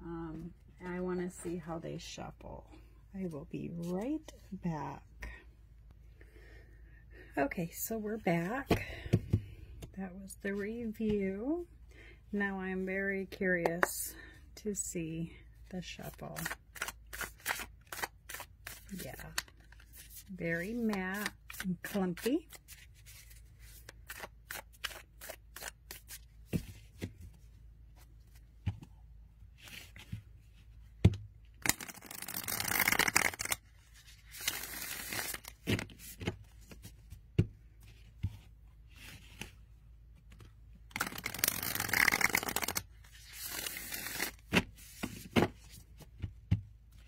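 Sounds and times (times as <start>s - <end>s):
cards riffle shuffling: 16.1s - 26.7s, 31.6s - 36.8s, 40.4s - 45.8s.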